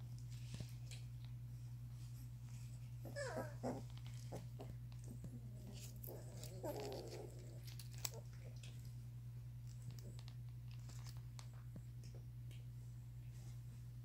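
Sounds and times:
steady low hum: 0.0 - 14.0
puppy whimpering: 3.0 - 8.5
puppy grunting: 3.0 - 8.6.

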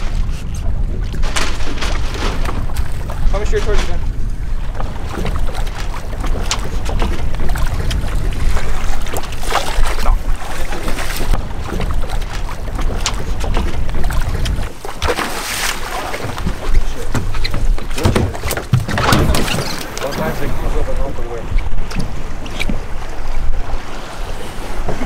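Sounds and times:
wind buffeting microphone: 0.0 - 25.0
sharp knocks: 16.2 - 19.8.

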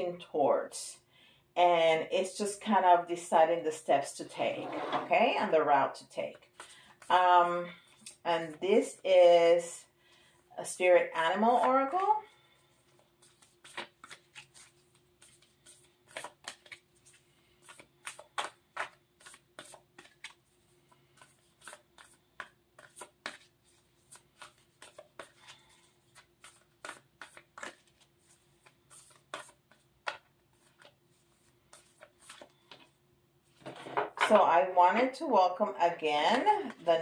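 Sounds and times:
cards shuffled by hand: 12.6 - 33.7.

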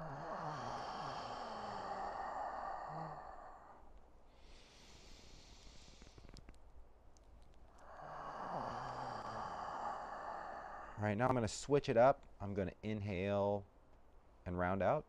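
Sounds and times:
man exhaling through mouth: 0.0 - 3.8, 7.8 - 11.0
breathy inhale through nose: 0.0 - 6.4, 7.8 - 11.0.

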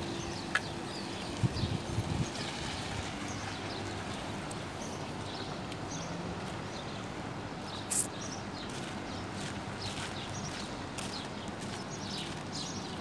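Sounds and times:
small birds chirping: 0.0 - 7.0, 7.6 - 13.0
outdoor background hum: 0.0 - 13.0
footsteps on pavement: 0.1 - 1.5, 5.2 - 6.8, 7.7 - 13.0.

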